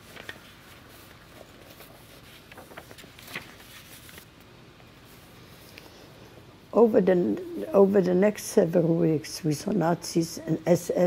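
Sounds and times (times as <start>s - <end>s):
paper rustling: 0.0s - 5.7s.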